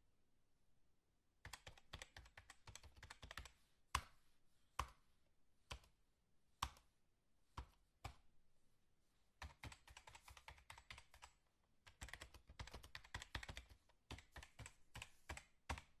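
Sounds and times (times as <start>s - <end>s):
laptop keys clicking: 1.4s - 4.1s, 9.4s - 16.0s.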